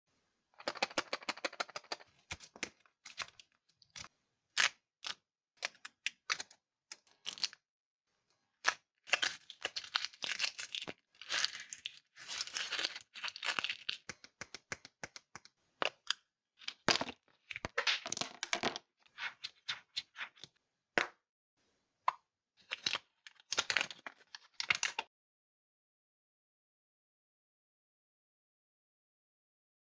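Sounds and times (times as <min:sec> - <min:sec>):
chocolate shell cracking: 0:00.6 - 0:03.4, 0:08.6 - 0:18.6
foil wrapper crinkling and tearing: 0:09.1 - 0:14.1.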